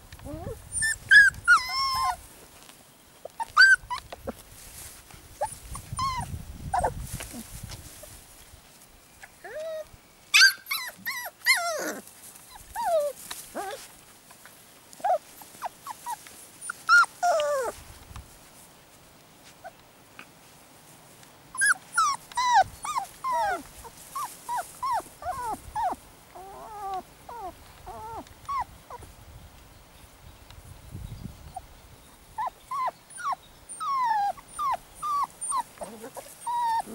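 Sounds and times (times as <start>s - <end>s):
puppies whining and yipping: 0.2s - 2.2s, 3.2s - 4.4s, 5.4s - 8.2s, 9.4s - 13.9s, 15.0s - 17.8s, 21.6s - 29.1s, 32.4s - 36.9s.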